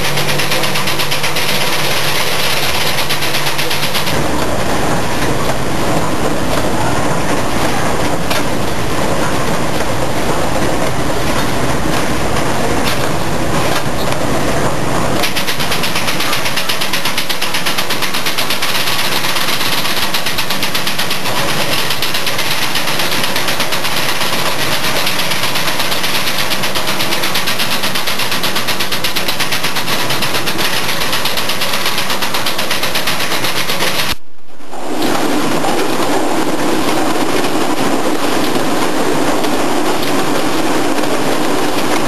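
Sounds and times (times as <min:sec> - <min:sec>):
bottling machine clattering: 0:00.0 - 0:14.2.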